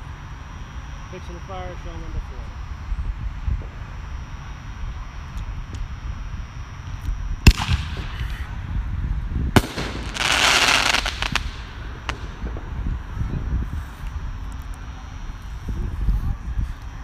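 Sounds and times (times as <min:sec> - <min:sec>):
firework crackling: 0:06.8 - 0:17.0
firework launch bang: 0:07.4 - 0:08.5, 0:09.5 - 0:13.1
firework shell bursting bang: 0:09.6 - 0:12.7.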